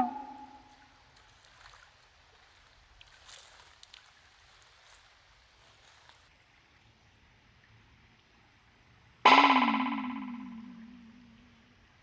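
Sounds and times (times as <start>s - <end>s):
soft rustles: 1.2s - 6.3s.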